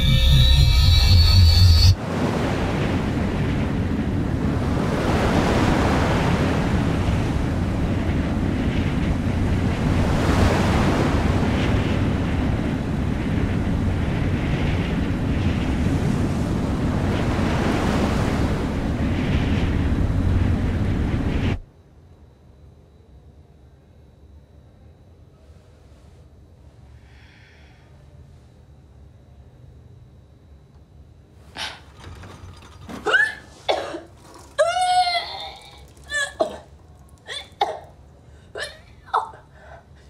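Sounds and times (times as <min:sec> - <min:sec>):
low rumble: 0:00.0 - 0:05.0
wind rushing: 0:00.0 - 0:21.6.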